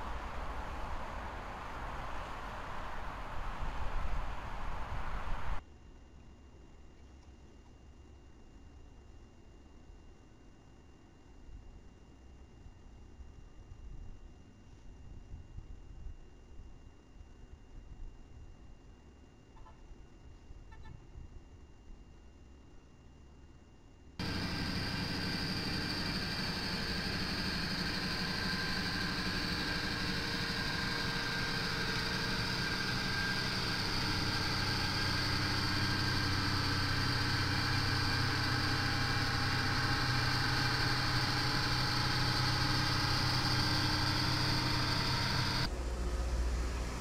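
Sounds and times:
train diesel engine running: 0.0s - 5.6s, 24.2s - 47.0s.

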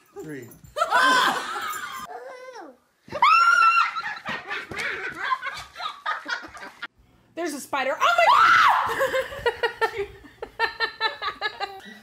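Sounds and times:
woman shrieking: 3.2s - 4.0s, 8.1s - 8.9s.

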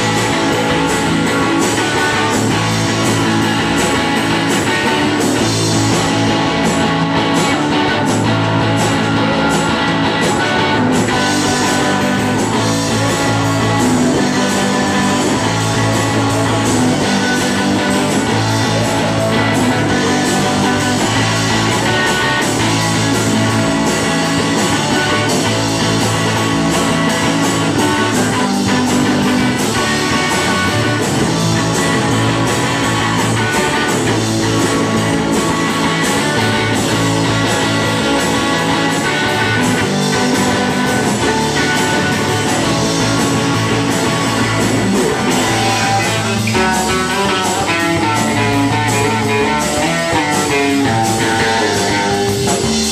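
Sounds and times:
bass guitar: 0.0s - 52.9s
distorted electric guitar: 0.0s - 52.9s
drums with steady beat: 0.0s - 52.9s.

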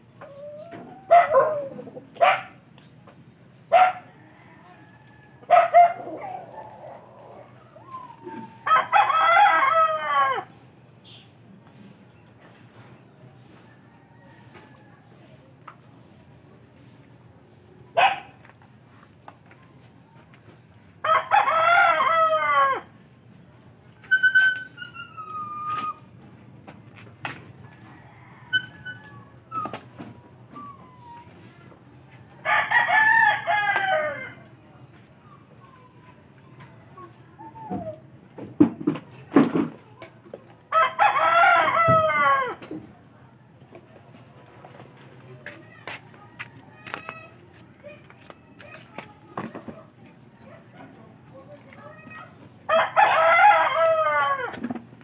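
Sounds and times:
dog barking: 1.1s - 2.6s, 3.7s - 4.1s, 5.5s - 7.0s, 18.0s - 18.4s
rooster crowing: 7.8s - 10.5s, 21.0s - 22.8s, 32.4s - 34.5s, 40.7s - 42.6s, 52.7s - 54.6s.

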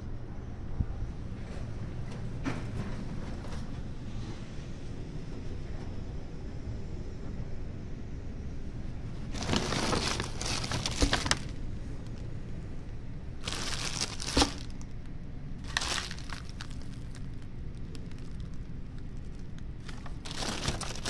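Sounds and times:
steady low rumble: 0.0s - 21.0s
plastic and paper bags crinkling: 9.3s - 12.2s, 13.4s - 14.9s, 15.6s - 21.0s.

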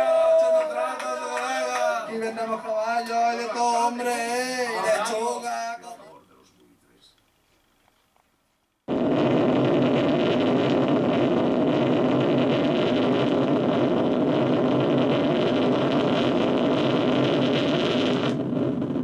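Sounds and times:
explosion rumble: 8.9s - 19.0s.

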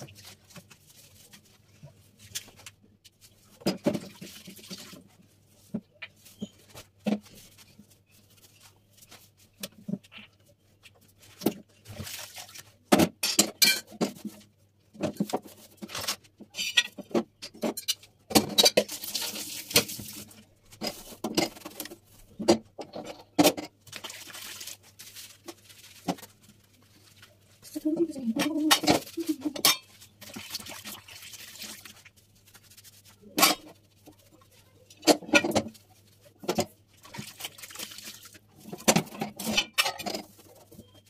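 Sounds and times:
dishes and metal grates clattering: 13.0s - 14.4s, 15.0s - 20.0s, 28.3s - 30.3s, 33.4s - 33.8s, 35.0s - 35.8s, 38.7s - 41.0s.

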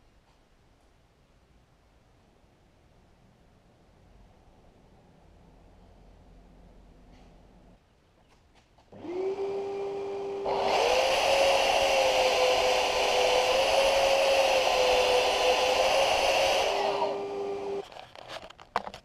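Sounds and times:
belt sander motor whine: 9.0s - 17.8s.

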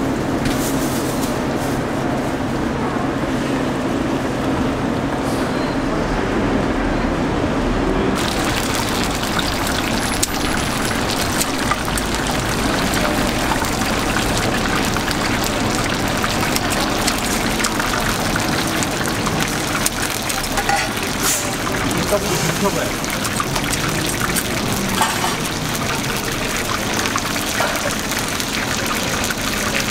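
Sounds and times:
sauce simmering and bubbling: 8.2s - 29.9s.

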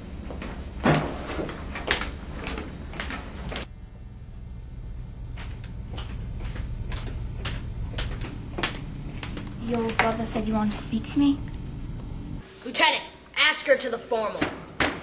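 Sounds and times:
low room hum: 0.0s - 15.0s
footsteps on a hard floor: 0.2s - 3.7s, 5.3s - 10.9s.

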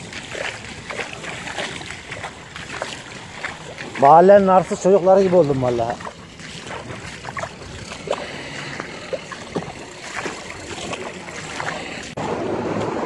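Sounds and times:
feet sloshing through water: 0.0s - 13.0s
wind on microphone: 5.7s - 13.0s.

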